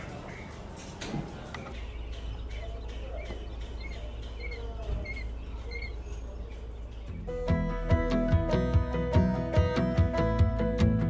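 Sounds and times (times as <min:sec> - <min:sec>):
chicks peeping: 0:00.0 - 0:07.3.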